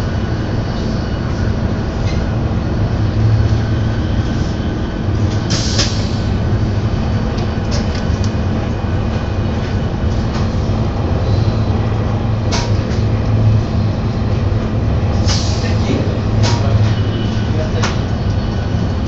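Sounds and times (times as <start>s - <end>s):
train interior hum and rumble: 0.0s - 19.0s.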